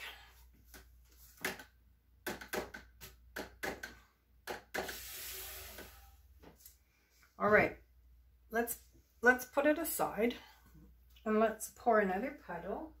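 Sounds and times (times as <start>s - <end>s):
board clicking and knocking: 1.4s - 5.0s.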